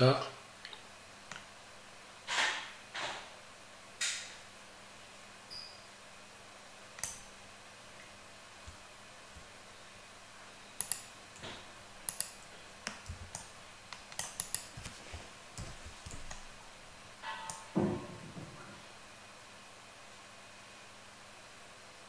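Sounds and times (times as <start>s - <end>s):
mouse and keyboard clicks: 7.0s - 7.3s, 10.8s - 15.0s.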